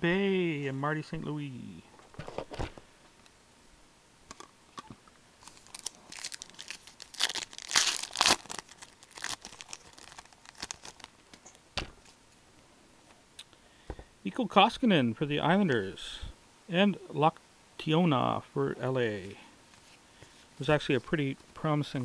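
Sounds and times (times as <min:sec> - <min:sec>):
wrapper tearing and crinkling: 0:05.4 - 0:11.2.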